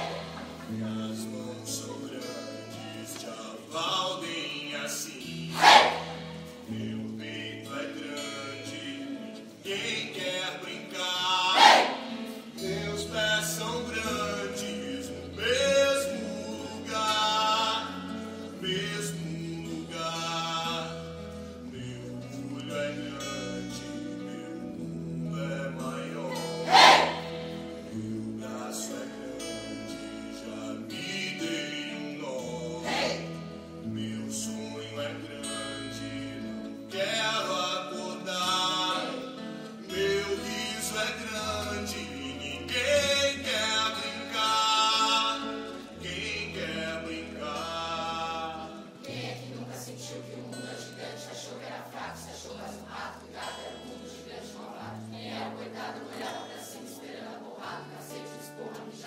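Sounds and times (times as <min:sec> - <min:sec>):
loud shouts: 0:00.0 - 0:00.7, 0:05.5 - 0:06.4, 0:11.5 - 0:12.2, 0:26.3 - 0:27.6, 0:32.8 - 0:33.4
acoustic guitar: 0:00.0 - 0:59.0
group singing: 0:00.0 - 0:59.0.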